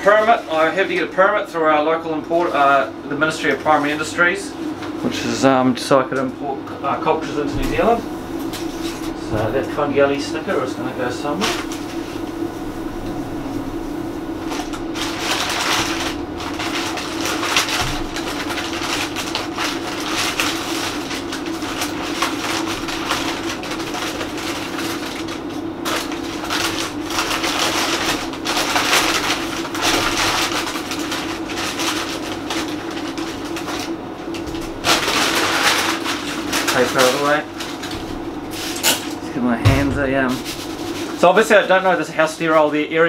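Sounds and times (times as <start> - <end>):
steady low hum: 0.0 - 43.0
packing paper crinkling: 7.3 - 38.8.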